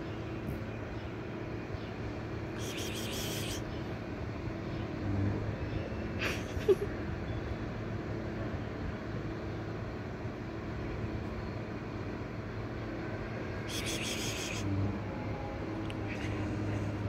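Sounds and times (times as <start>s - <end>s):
distant road traffic hum: 0.0s - 17.0s.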